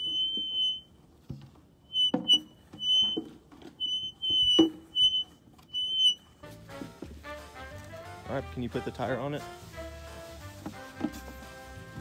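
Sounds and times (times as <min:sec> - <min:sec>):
high whistle-like tone: 0:00.0 - 0:00.9, 0:01.9 - 0:06.3.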